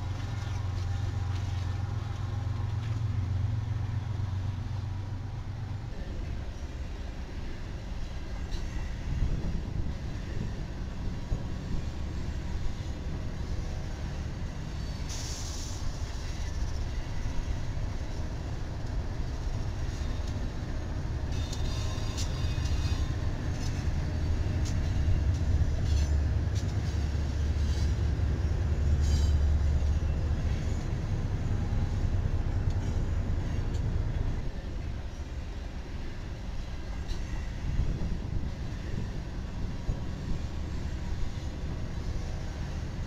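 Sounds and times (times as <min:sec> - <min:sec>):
freight train rumble: 0:00.0 - 0:43.0
metallic squeals from rails: 0:06.3 - 0:09.5, 0:11.2 - 0:18.2, 0:19.4 - 0:43.0.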